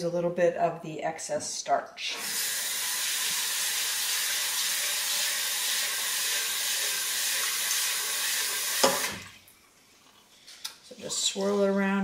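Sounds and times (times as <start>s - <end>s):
faucet running into metal pot: 2.1s - 9.4s.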